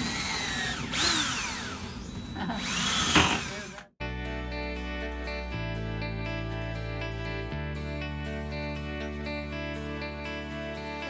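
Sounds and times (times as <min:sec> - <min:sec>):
cordless drill on wood: 0:00.0 - 0:03.9.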